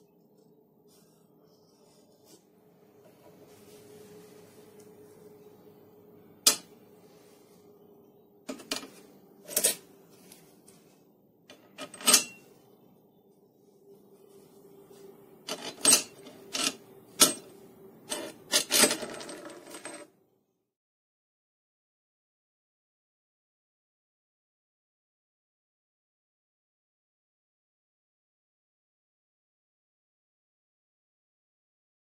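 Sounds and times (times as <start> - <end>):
faint steady hum: 0.0 - 20.6
metal parts clinking on workbench: 11.5 - 12.5, 15.5 - 17.5, 18.1 - 20.1.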